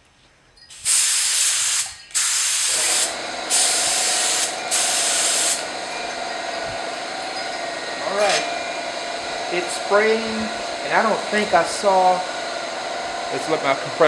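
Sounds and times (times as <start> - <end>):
spray gun hissing: 0.7 - 5.8
air compressor humming: 0.7 - 14.0.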